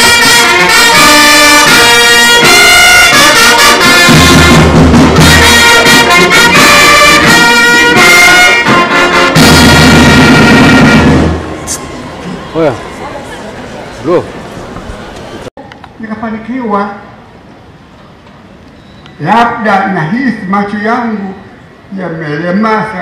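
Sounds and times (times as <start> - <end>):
brass band playing: 0.0 - 13.4.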